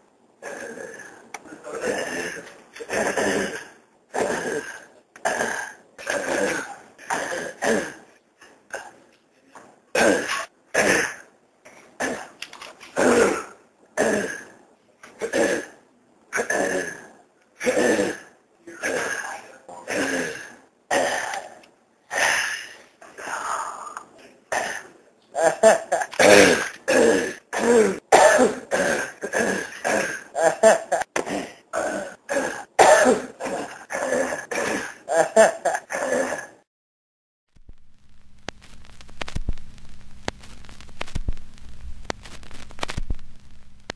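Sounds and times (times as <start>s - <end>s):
man clearing throat: 24.5s - 36.6s.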